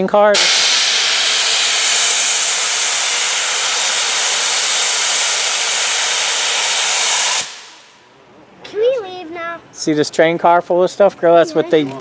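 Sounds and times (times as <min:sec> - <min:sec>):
steam locomotive venting steam: 0:00.0 - 0:08.0.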